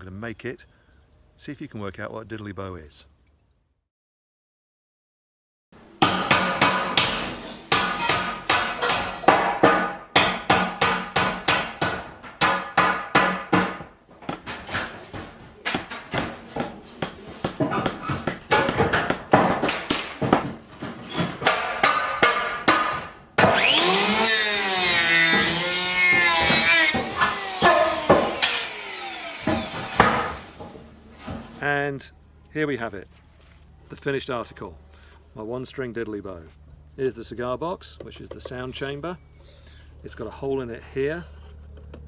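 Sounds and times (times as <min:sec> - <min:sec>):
hammering: 0:06.0 - 0:31.5.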